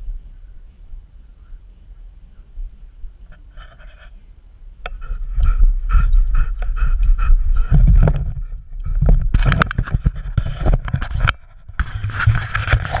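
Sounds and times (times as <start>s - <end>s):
camera harness knocking and rubbing: 7.7s - 13.0s.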